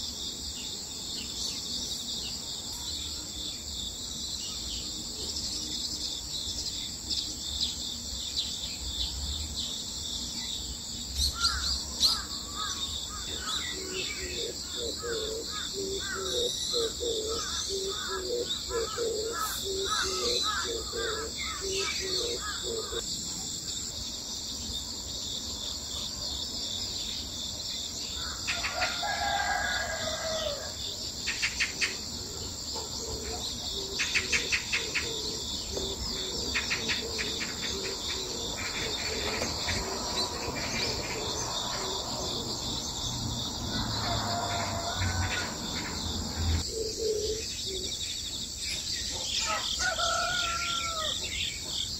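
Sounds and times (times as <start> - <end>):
crickets trilling: 0.0 - 51.9
rooster crowing: 28.2 - 30.8, 43.5 - 46.6, 49.2 - 51.4.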